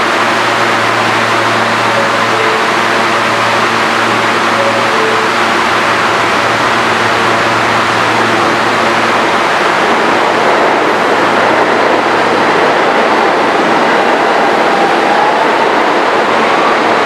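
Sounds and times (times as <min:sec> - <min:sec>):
train motor whine: 0:00.0 - 0:10.1
subway train humming: 0:00.0 - 0:17.0.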